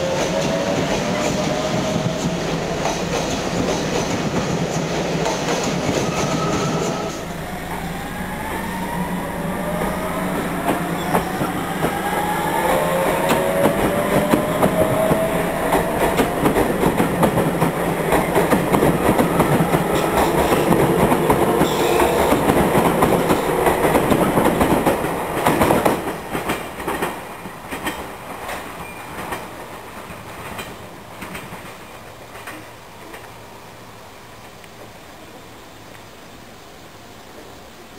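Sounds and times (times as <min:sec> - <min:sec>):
traction motor whine: 0:06.3 - 0:18.0.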